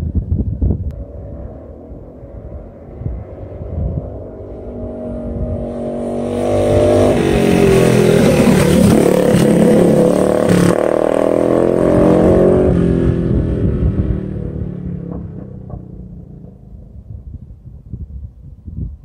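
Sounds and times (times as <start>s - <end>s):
mini bike engine passing: 1.2s - 14.0s
exhaust backfire crack: 5.2s - 18.0s.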